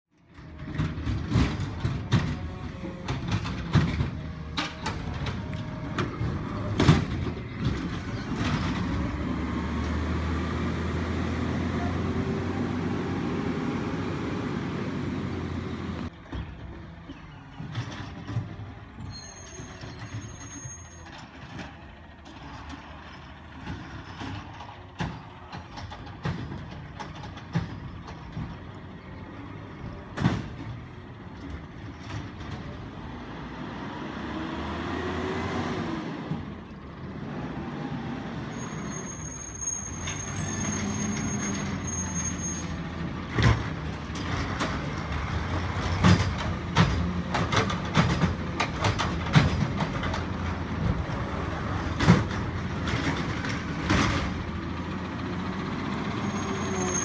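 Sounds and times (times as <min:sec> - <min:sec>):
garbage truck engine running: 0:00.2 - 0:35.4, 0:36.0 - 0:57.0
metal clanks: 0:00.3 - 0:09.2, 0:39.2 - 0:50.8.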